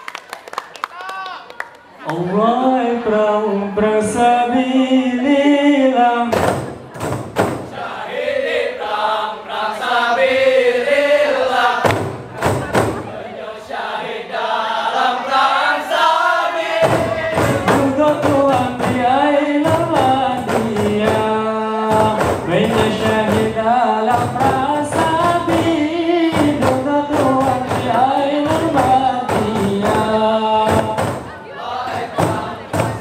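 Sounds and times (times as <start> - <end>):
men singing a melodic chant: 2.1 - 6.4, 7.7 - 12.1, 12.9 - 33.0
frame drums struck rhythmically: 6.3 - 7.9, 11.8 - 13.2, 16.7 - 33.0.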